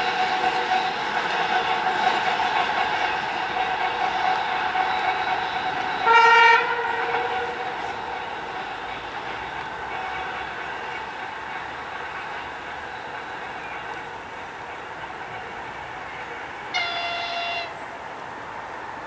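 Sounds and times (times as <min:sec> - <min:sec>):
approaching locomotives: 0:00.0 - 0:19.0
locomotive horn blast: 0:04.3 - 0:08.2, 0:16.7 - 0:17.9.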